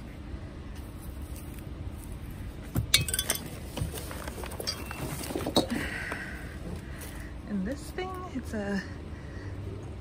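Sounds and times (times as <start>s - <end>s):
metal parts clinking: 2.9s - 3.6s, 4.4s - 5.4s.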